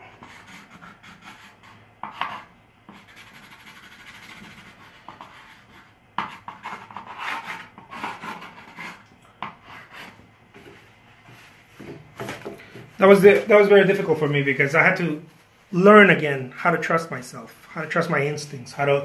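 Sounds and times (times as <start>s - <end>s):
palette knife scraping paint: 0.2s - 10.8s.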